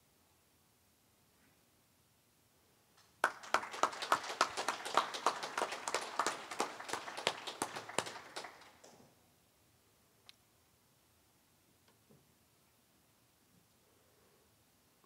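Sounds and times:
single person clapping: 3.0 - 9.0
small audience applauding: 3.0 - 9.1.

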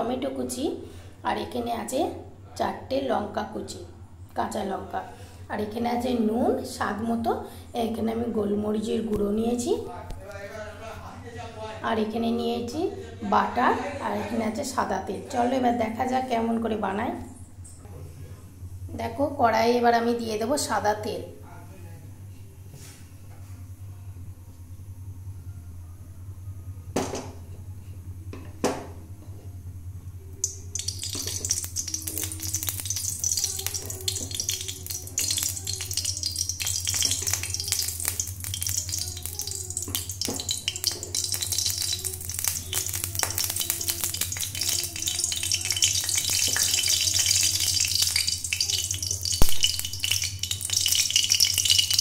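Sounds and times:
oil hissing and sizzling: 30.4 - 52.0.

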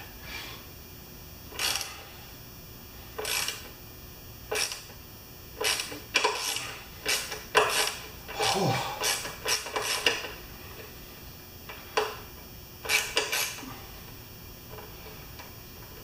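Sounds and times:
socket ratchet clicking: 1.6 - 1.9, 3.2 - 3.6.

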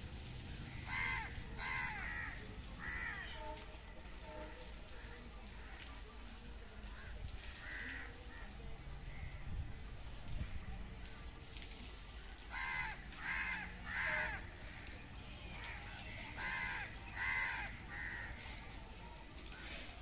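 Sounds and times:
crow cawing: 0.7 - 3.2, 7.0 - 8.4, 12.5 - 14.8, 16.4 - 18.4.

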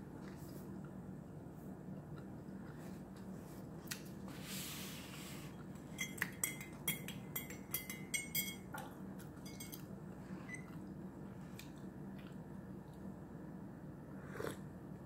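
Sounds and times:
spoon clinking in ceramic mug: 6.0 - 8.8, 9.4 - 9.9.

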